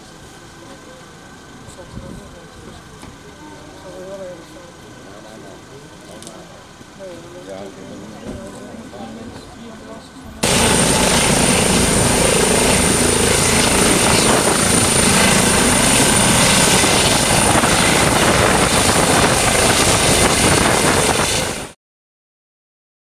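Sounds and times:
helicopter rotor and turbine noise: 10.4s - 21.8s.

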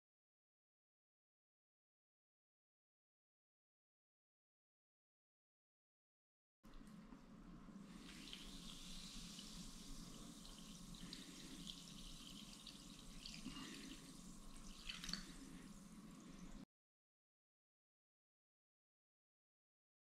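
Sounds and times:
water pouring into bowl: 7.7s - 16.6s.

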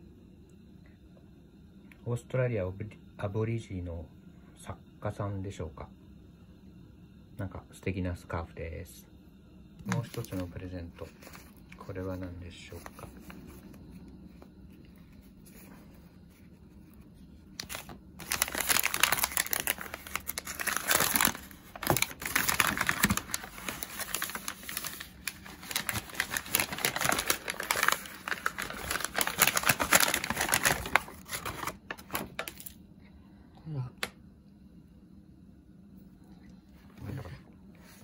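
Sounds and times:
paper gift wrapping crinkling: 9.9s - 13.8s, 17.5s - 32.8s.

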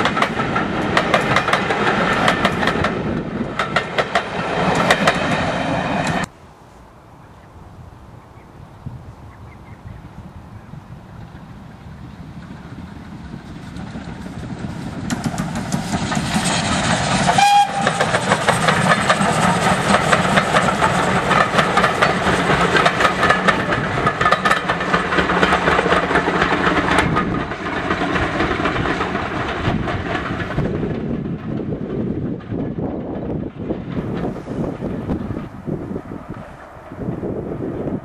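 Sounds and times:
wheels clicking over rail joints: 0.0s - 6.3s, 12.3s - 37.4s
steam train passing: 0.0s - 8.2s, 8.8s - 38.0s
steam whistle: 17.3s - 18.2s.

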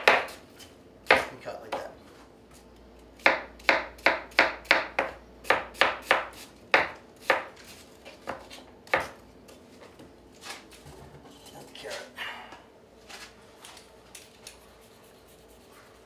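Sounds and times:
knife chopping onion on board: 0.0s - 0.4s, 1.0s - 2.0s, 3.2s - 9.6s.

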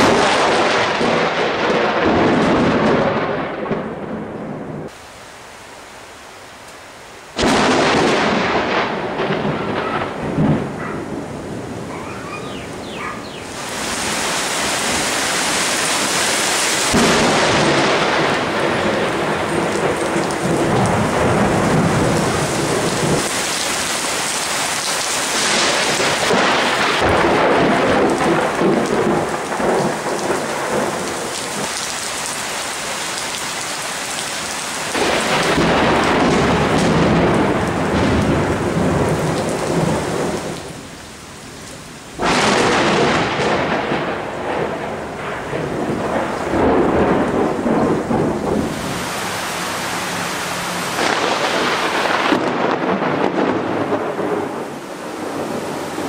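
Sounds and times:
thunder crack: 0.0s - 4.9s, 7.4s - 12.0s, 16.9s - 23.4s, 25.3s - 31.7s, 34.9s - 40.8s, 42.2s - 49.4s, 50.9s - 55.7s
thunder rumbling: 0.0s - 5.0s, 7.4s - 31.9s, 34.8s - 40.9s, 42.2s - 56.0s
heavy rain: 0.0s - 56.0s.

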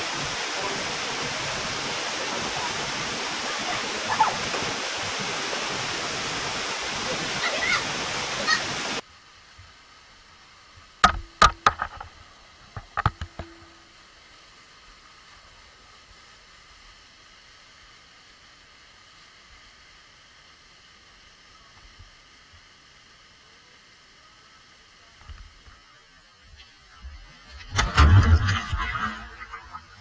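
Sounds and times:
waterfall rushing: 0.0s - 9.0s
quiet steady hiss: 8.8s - 30.0s
sharp knocks: 11.0s - 12.1s.

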